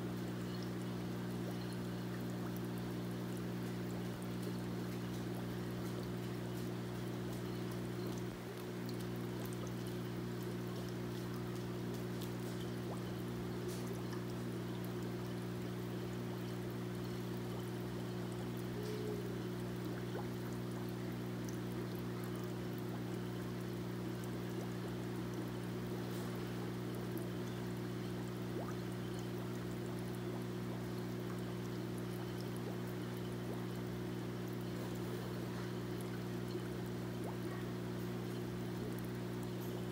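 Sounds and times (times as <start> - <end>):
low electrical hum: 0.0 - 39.9
water pouring into aquarium: 0.0 - 39.9.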